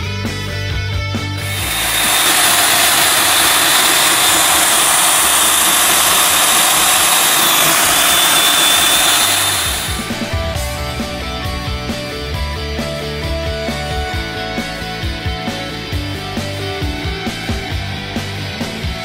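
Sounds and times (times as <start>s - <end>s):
core drill cutting concrete: 1.3s - 11.2s.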